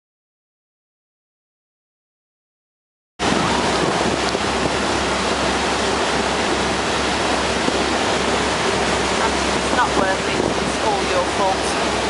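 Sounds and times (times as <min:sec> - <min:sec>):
low engine hum: 0:03.2 - 0:12.0
water rushing past hull: 0:03.2 - 0:12.0
wind rushing over microphone: 0:03.2 - 0:12.0.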